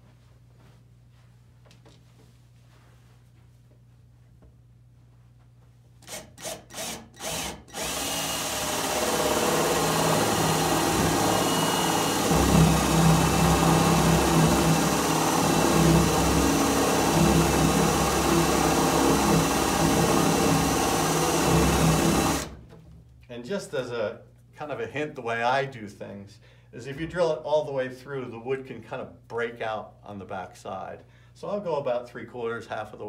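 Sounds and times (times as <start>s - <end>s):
cordless drill boring into wood: 6.0s - 22.6s.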